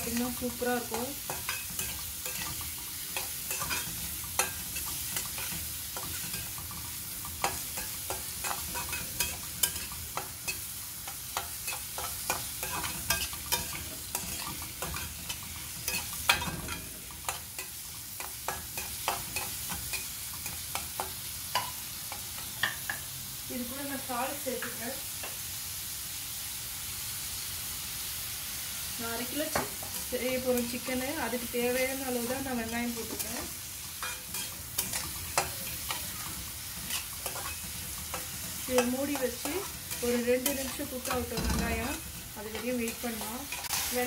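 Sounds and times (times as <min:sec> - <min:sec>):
metal spatula scraping a pan: 0:00.0 - 0:22.2, 0:29.6 - 0:44.0
onions sizzling in hot oil: 0:00.0 - 0:44.0.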